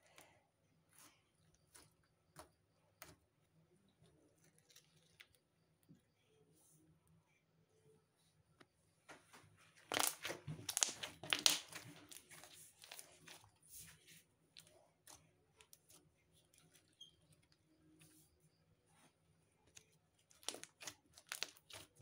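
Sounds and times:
slime squishing and popping: 9.8 - 13.1, 20.3 - 22.0.

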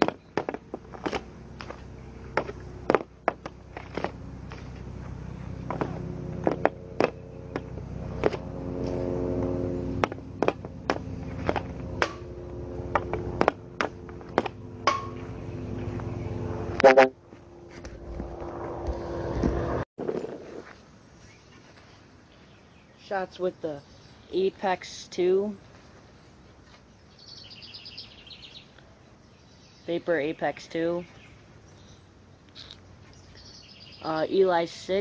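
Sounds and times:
droning hum: 0.0 - 20.8.

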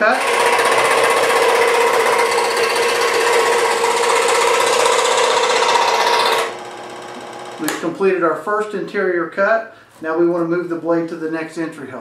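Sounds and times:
scroll saw cutting wood: 0.0 - 8.0.

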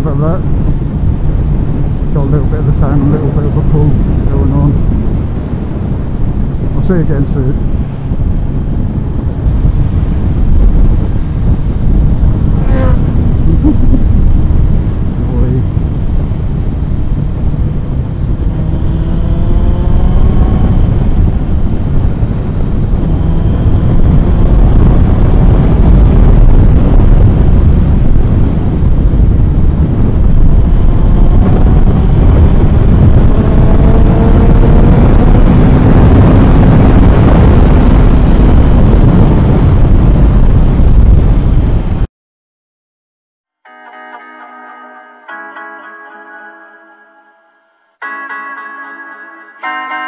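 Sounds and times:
wind rush on microphone: 0.0 - 42.1
motorcycle engine accelerating: 7.5 - 41.6.

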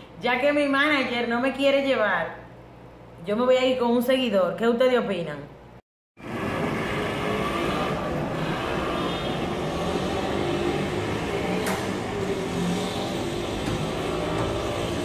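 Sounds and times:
road traffic noise: 6.2 - 15.0.

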